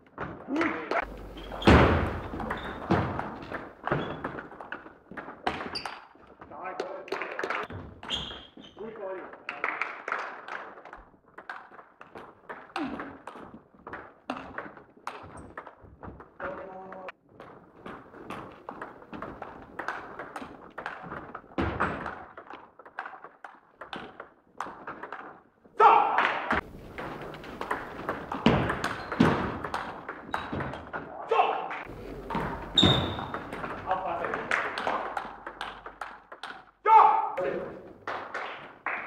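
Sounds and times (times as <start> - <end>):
ping pong ball clicking off bats: 17.4 - 25.3, 26.6 - 31.0, 31.8 - 36.8
voices in a hall: 31.0 - 35.4
loud voice: 36.9 - 37.7.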